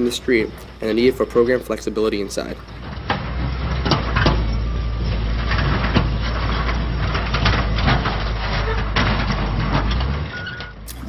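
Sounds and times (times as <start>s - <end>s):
low street rumble: 0.0s - 11.0s
film clicks and knocks: 2.6s - 11.0s.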